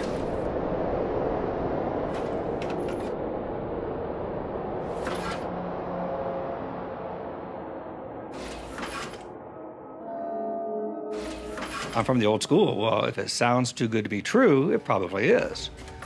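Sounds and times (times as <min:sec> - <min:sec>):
low rumbling drone: 0:00.0 - 0:12.4.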